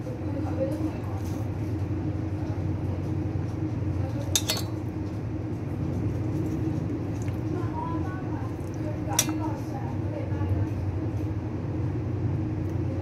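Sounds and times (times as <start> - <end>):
kitchenware clinking: 4.3 - 4.8, 9.1 - 9.6.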